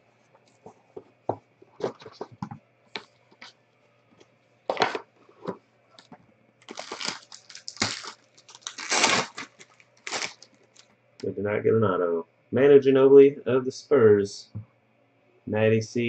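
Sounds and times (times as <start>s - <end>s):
plastic wrapper crinkling and tearing: 6.0s - 10.9s.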